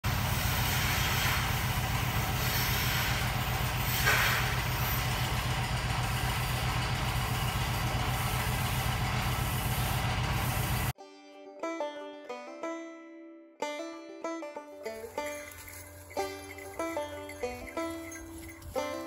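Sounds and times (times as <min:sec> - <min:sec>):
milking machine hum: 0:00.0 - 0:10.9
air hissing: 0:00.1 - 0:10.9.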